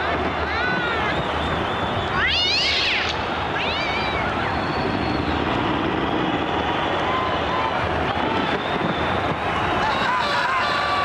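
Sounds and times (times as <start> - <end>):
steady rushing noise: 0.0 - 11.0
cat yowling: 2.2 - 4.4.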